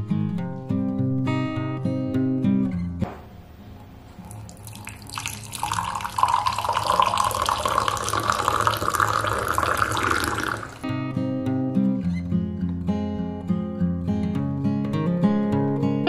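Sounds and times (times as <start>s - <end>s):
liquid pouring into glass: 4.1s - 10.9s.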